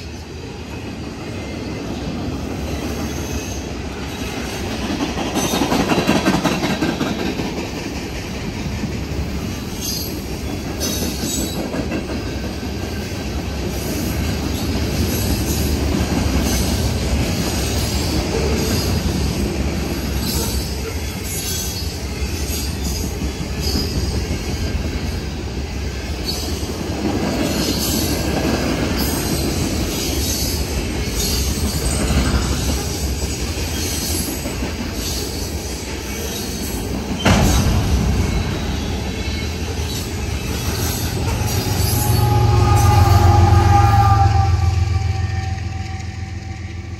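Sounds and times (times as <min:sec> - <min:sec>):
rail clacking: 0:00.0 - 0:46.9
train wheels rumbling on rail: 0:00.0 - 0:46.9
loud metal clank: 0:37.2 - 0:40.2.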